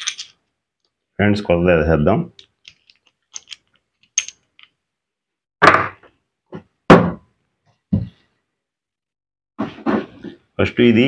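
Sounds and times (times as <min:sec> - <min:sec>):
metal parts clicking: 0:00.0 - 0:00.4, 0:02.4 - 0:04.8.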